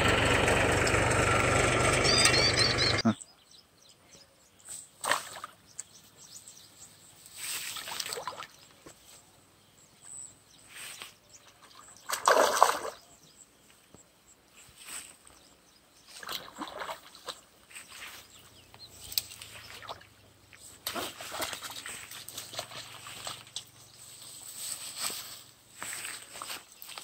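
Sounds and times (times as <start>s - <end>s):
fish splashing in water: 12.1s - 13.0s.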